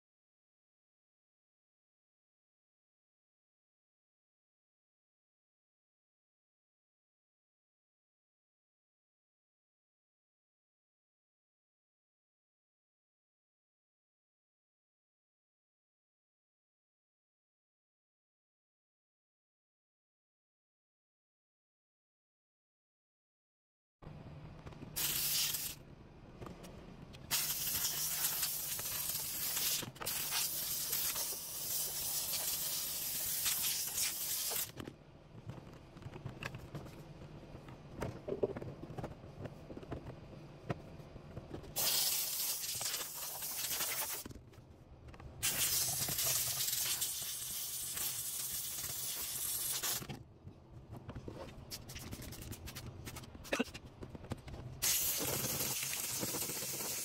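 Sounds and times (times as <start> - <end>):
steam cleaner hissing: 25.0 - 25.7, 27.3 - 34.7, 41.8 - 44.2, 45.4 - 50.0, 54.8 - 57.0.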